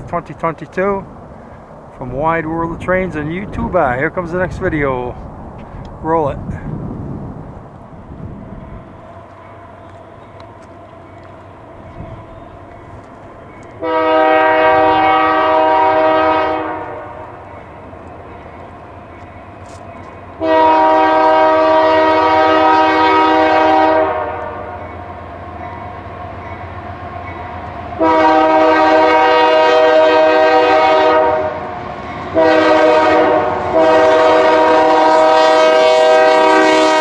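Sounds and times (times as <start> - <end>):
train rumble: 0.0 - 37.0
locomotive air horn blasts: 13.8 - 17.3, 20.4 - 24.8, 28.0 - 31.6, 32.3 - 37.0.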